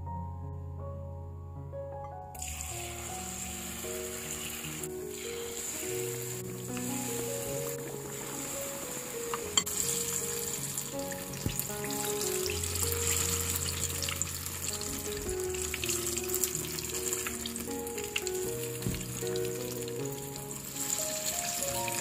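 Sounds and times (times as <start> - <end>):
fritters deep-frying in oil: 9.4 - 22.0.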